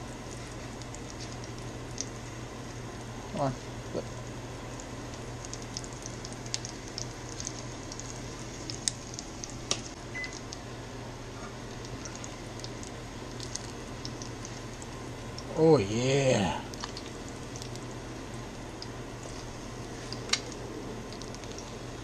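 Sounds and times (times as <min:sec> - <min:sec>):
fish sizzling in oil: 0:00.0 - 0:15.3.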